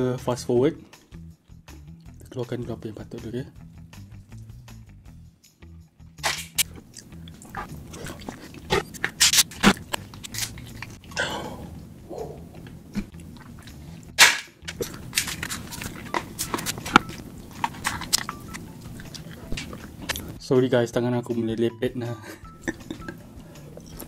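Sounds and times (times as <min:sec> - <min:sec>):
lobster shell cracking: 0:06.2 - 0:11.1, 0:14.2 - 0:20.4
kitchen scissors cutting: 0:07.4 - 0:11.0, 0:14.2 - 0:20.3.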